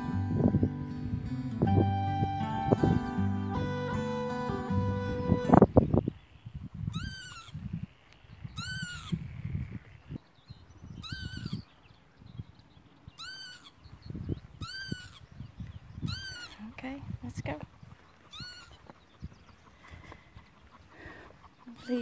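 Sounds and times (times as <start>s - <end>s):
low rumbling noise: 0.0s - 6.0s
bird calling: 0.0s - 9.2s, 10.9s - 12.2s, 12.8s - 16.8s, 17.6s - 22.0s.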